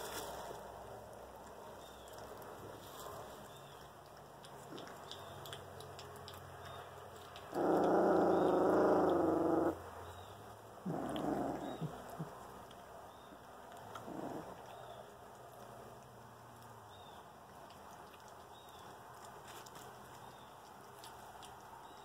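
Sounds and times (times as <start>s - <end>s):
puppies play-growling: 1.4s - 16.8s.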